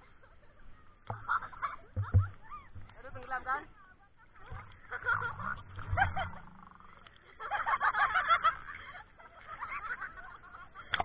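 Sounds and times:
people laughing and shrieking: 0:04.0 - 0:06.5, 0:07.2 - 0:11.0.

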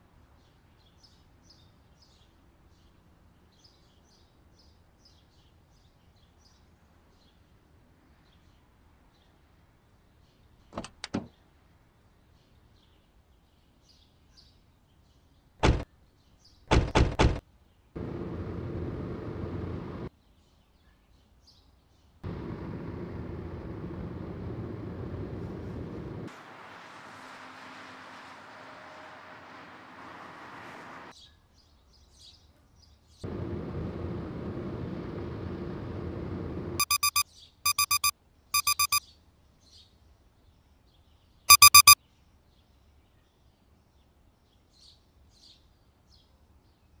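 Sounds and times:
car road and engine rumble: 0:18.0 - 0:20.1, 0:22.2 - 0:31.1, 0:33.2 - 0:39.0
alarm clock beeping: 0:36.8 - 0:39.0, 0:41.5 - 0:42.0.

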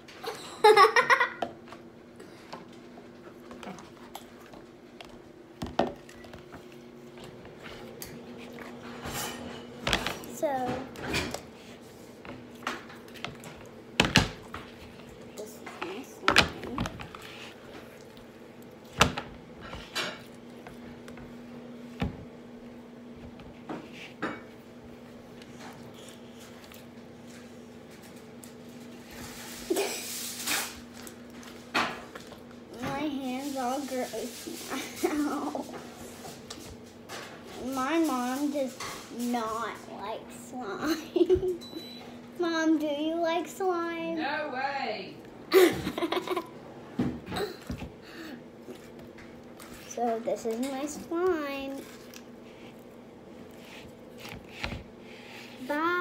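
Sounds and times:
slime squelching: 0:48.6 - 0:56.0.

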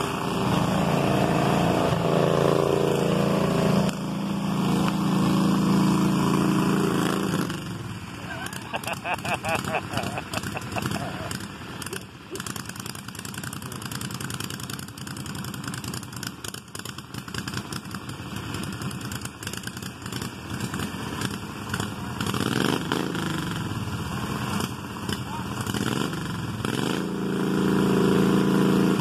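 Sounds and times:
garden tractor engines running: 0:00.0 - 0:29.0.

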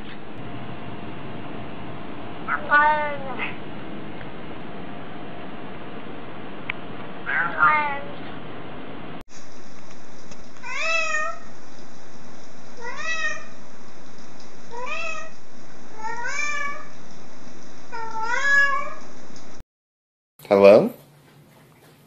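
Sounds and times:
cat meowing: 0:02.5 - 0:03.6, 0:07.2 - 0:08.2, 0:10.6 - 0:11.5, 0:12.8 - 0:13.6, 0:14.7 - 0:17.0, 0:17.9 - 0:19.1.

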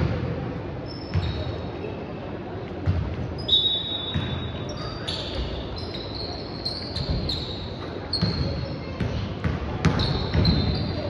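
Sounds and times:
sneakers squeaking on court: 0:00.8 - 0:02.0, 0:02.8 - 0:11.0
basketball bouncing: 0:02.8 - 0:03.1, 0:08.2 - 0:10.8.

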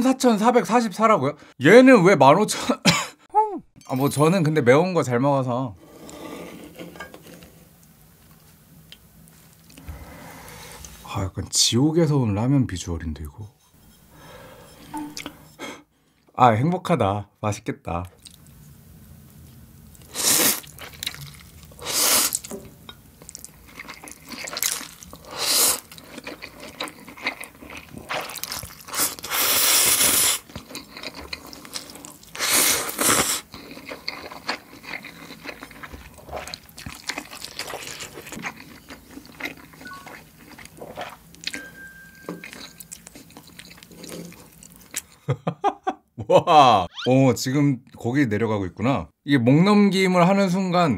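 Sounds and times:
person slurping noodles: 0:20.1 - 0:22.5, 0:25.2 - 0:35.5
wet chewing and smacking: 0:23.2 - 0:29.3, 0:33.4 - 0:41.6, 0:42.4 - 0:45.2.

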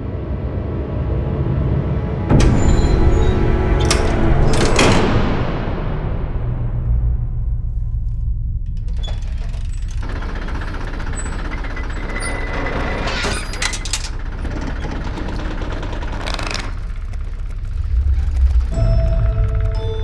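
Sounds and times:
low rumble: 0:00.5 - 0:12.0, 0:14.1 - 0:20.0
picture cards clattering: 0:14.8 - 0:19.6.

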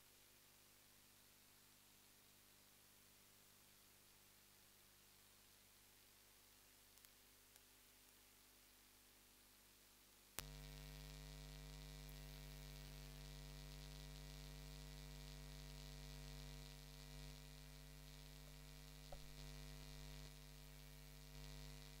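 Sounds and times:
electrical mains hum: 0:00.9 - 0:22.0
click: 0:07.0 - 0:07.7.

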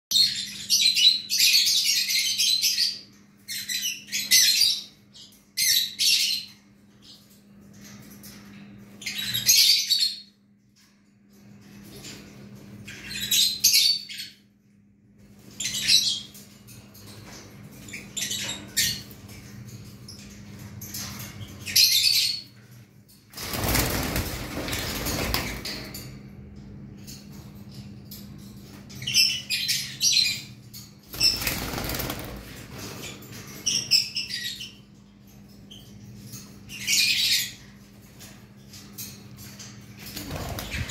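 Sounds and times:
wings flapping: 0:23.3 - 0:25.9, 0:31.1 - 0:33.2, 0:40.0 - 0:40.9.

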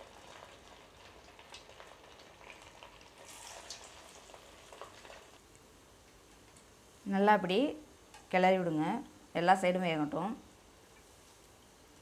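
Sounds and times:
deep-frying sizzle with crackles: 0:00.0 - 0:06.8.

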